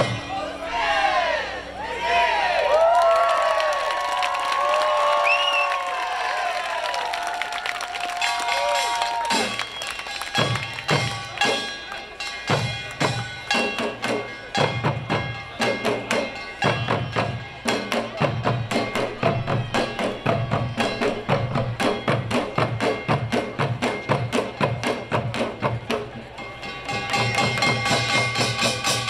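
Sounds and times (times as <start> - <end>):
fast driving drum rhythm: 8.8 - 29.0.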